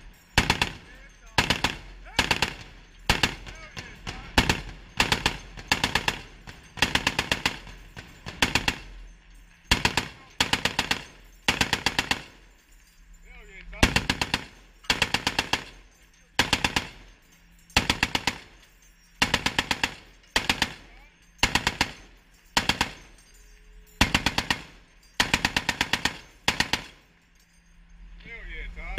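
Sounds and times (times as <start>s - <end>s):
machine gun bursts: 0.3s - 9.0s, 9.7s - 12.4s, 13.8s - 15.8s, 16.4s - 17.1s, 17.8s - 18.6s, 19.2s - 23.2s, 24.0s - 27.0s.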